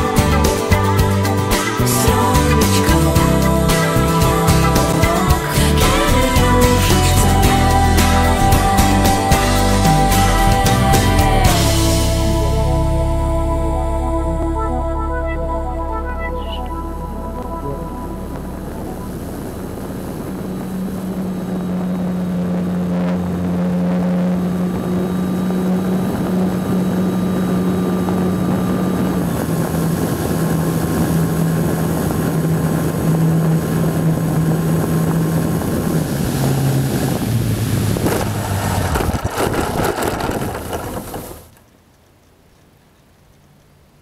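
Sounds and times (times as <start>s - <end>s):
wind rushing over microphone: 16.6s - 41.5s.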